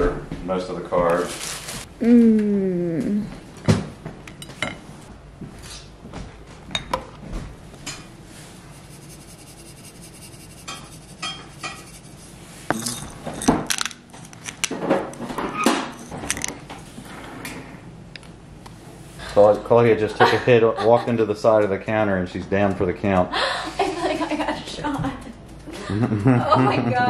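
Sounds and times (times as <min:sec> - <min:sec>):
pepper grinder: 0:08.6 - 0:14.7
plates and cutlery clinking: 0:12.7 - 0:13.8.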